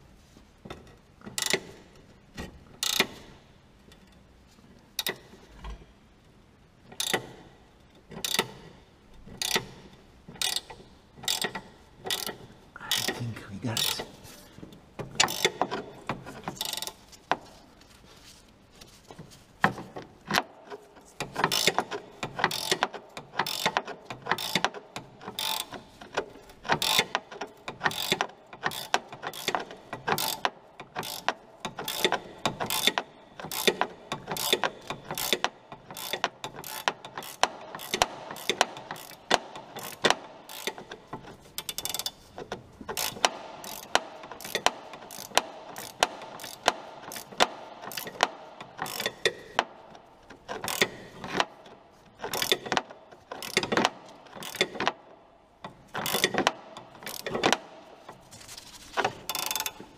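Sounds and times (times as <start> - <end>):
ratchet spanner clicking: 2.8 - 3.2, 6.9 - 7.3, 8.2 - 8.7, 9.3 - 13.2, 15.2 - 15.8, 21.2 - 42.2, 42.9 - 51.6, 52.2 - 55.0, 55.9 - 57.6, 59.3 - 59.8.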